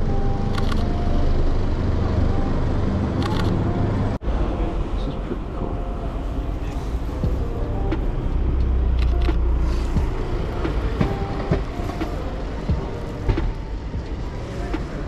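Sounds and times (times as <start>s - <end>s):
street noise: 0.0s - 15.0s
vehicle passing with low rumble: 0.0s - 15.0s.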